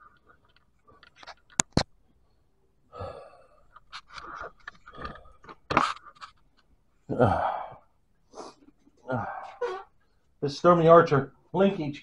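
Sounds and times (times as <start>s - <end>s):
person breathing heavily: 2.9s - 4.3s, 7.1s - 9.8s.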